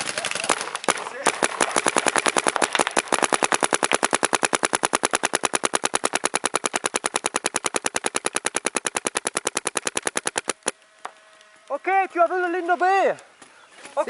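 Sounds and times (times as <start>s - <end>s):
paintball marker rapid firing: 0.0s - 11.2s.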